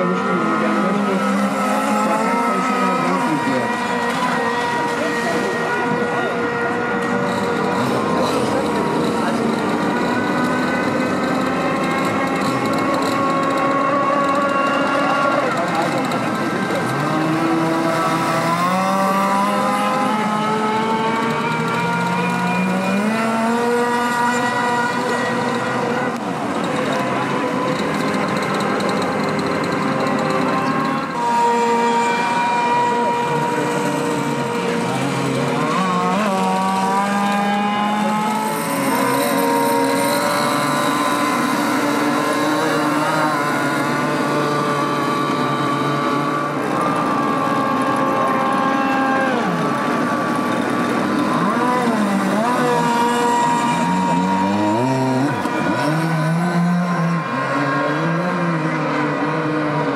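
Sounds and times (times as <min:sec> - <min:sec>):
model boat engine whining: 0:00.0 - 0:59.9.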